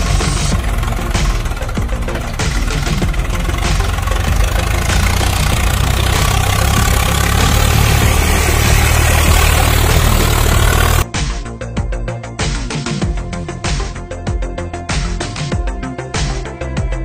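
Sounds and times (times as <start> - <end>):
engine idling: 0.0 - 11.1.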